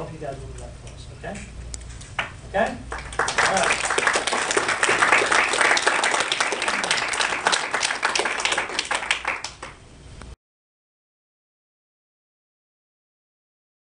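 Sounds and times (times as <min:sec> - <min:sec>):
audience applauding: 0:02.9 - 0:09.8.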